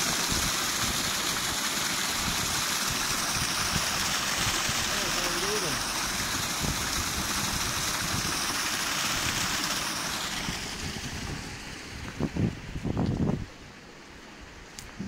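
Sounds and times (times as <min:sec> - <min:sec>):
slurry gushing into tank: 0:00.0 - 0:12.0.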